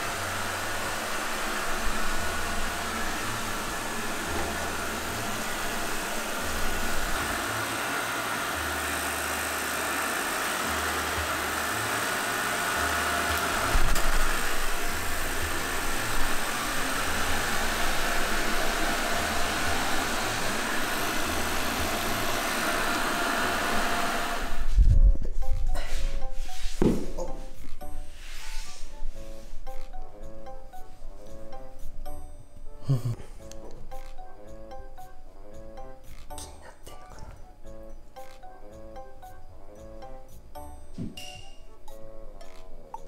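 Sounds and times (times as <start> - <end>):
robot vacuum cleaner whirring: 0.0 - 24.8.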